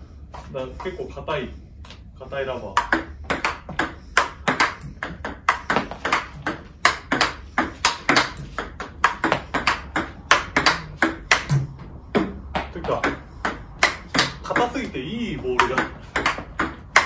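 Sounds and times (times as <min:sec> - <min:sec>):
ball bouncing on table: 0:02.8 - 0:14.8, 0:15.6 - 0:17.0
table tennis ball hitting bats: 0:02.8 - 0:17.0.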